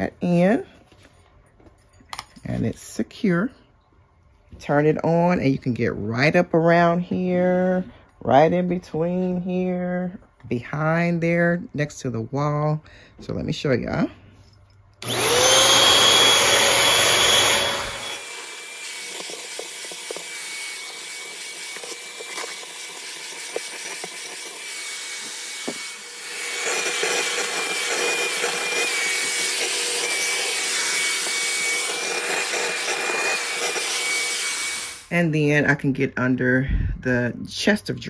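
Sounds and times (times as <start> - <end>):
handheld vacuum whining: 15.0 - 35.1.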